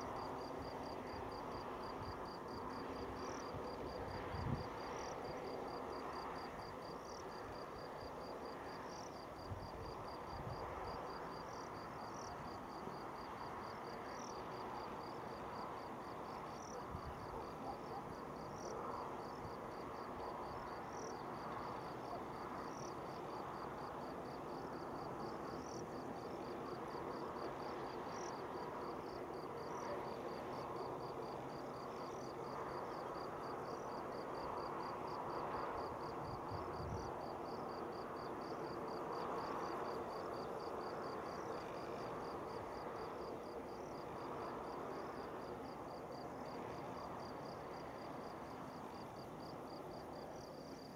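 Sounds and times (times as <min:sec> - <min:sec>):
cricket chirping: 0:00.0 - 0:50.9.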